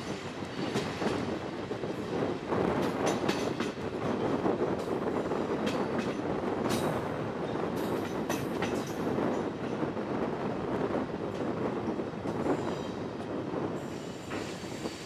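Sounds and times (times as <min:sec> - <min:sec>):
train wheels rumbling on rails: 0:00.0 - 0:15.0
wheels clacking over rail joints: 0:02.6 - 0:09.9.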